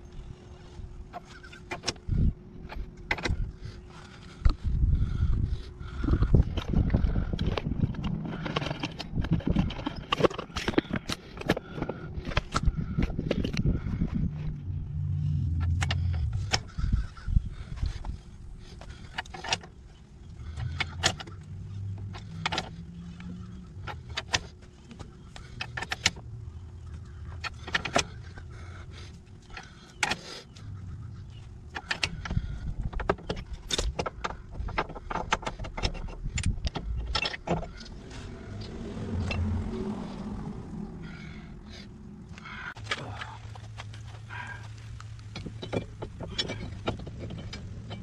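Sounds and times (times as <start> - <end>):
sharp metal clicks and clanks: 6.0 - 39.6, 45.0 - 48.0
low rumble: 11.6 - 19.2, 35.6 - 48.0.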